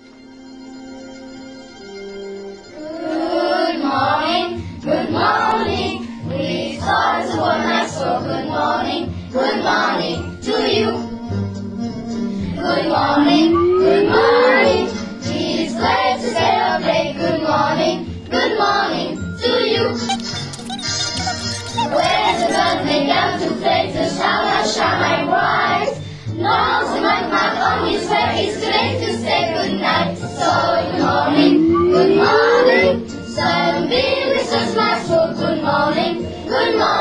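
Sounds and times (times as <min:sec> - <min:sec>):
children's choir singing: 0:02.7 - 0:11.2, 0:12.4 - 0:20.1, 0:21.8 - 0:37.0
instrumental backing: 0:11.8 - 0:17.0, 0:20.0 - 0:23.8, 0:28.7 - 0:34.9
rising sliding note: 0:12.6 - 0:15.4, 0:30.8 - 0:33.2.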